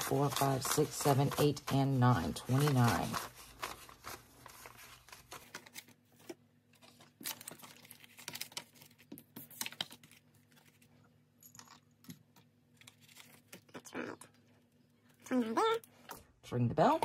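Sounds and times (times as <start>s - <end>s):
paper bills rustling: 0.0s - 10.9s.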